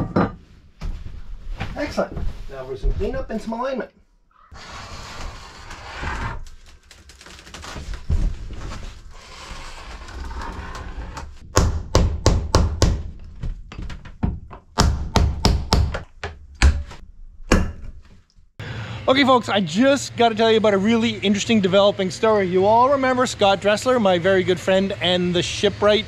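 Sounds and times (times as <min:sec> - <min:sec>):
scraping along wooden seam: 0:04.5 - 0:11.4
sharp knocks on wooden blocks: 0:14.2 - 0:17.8.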